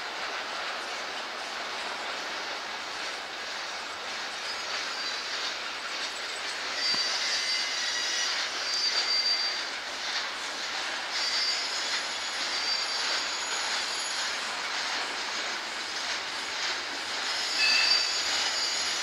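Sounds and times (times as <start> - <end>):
freight train wheels rumbling on rail: 0.0 - 19.0
high-pitched wheel squeals: 4.4 - 5.5, 6.6 - 10.1, 11.0 - 15.1, 17.2 - 19.0.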